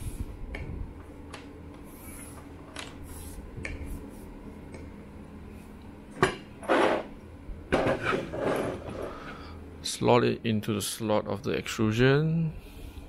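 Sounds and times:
parts clattering on wooden table: 7.7s - 9.1s.

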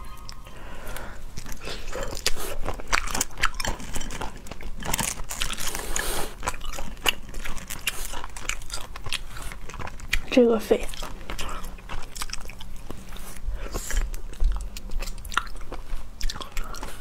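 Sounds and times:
chewing: 0.0s - 17.0s
shells cracking and crunching: 0.2s - 13.0s.

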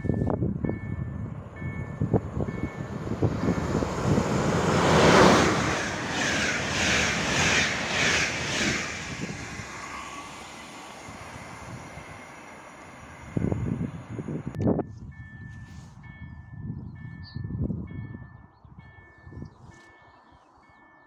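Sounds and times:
train passing at speed: 0.0s - 16.2s
train wheels clattering: 2.5s - 10.0s.

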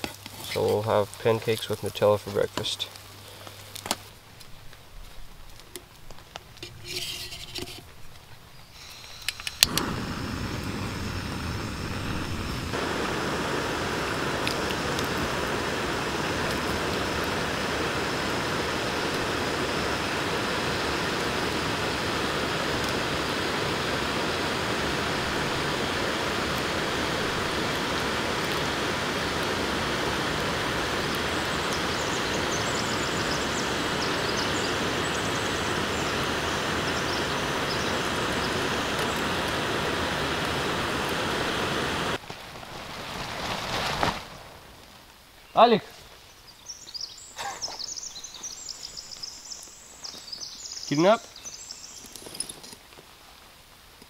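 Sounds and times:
gas stove burner hissing: 8.6s - 42.2s.

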